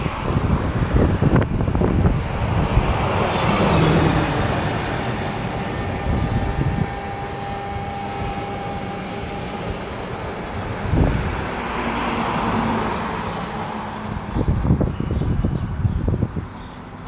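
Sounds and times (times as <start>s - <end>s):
faint steady whine: 0.0s - 11.9s
electric gate motors running: 0.0s - 14.0s
gusty wind on microphone: 0.0s - 16.8s.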